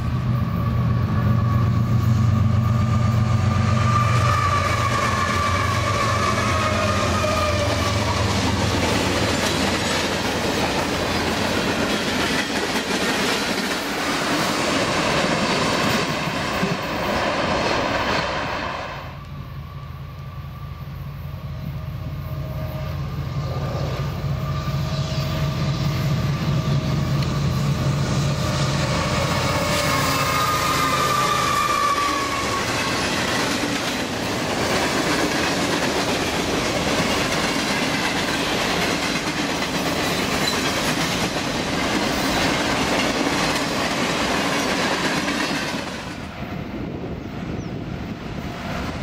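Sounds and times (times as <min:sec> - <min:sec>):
diesel locomotive engine drone: 0:00.0 - 0:49.0
train wheels rumbling on rails: 0:00.0 - 0:49.0
high squealing tones: 0:01.2 - 0:08.6, 0:23.4 - 0:33.5.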